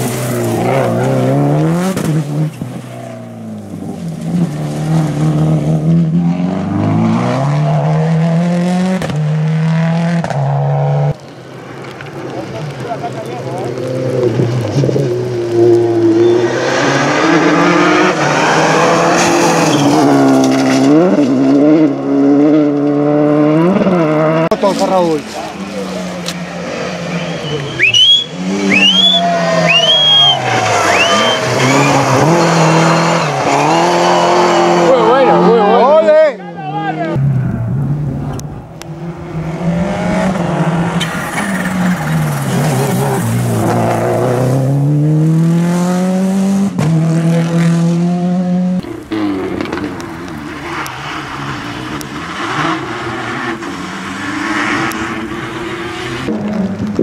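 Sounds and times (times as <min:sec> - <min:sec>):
tyre noise on wet tarmac: 0:00.0 - 0:06.3, 0:10.2 - 0:16.6, 0:24.5 - 0:35.0, 0:48.8 - 0:57.0
rally car engine at full throttle: 0:00.0 - 0:57.0.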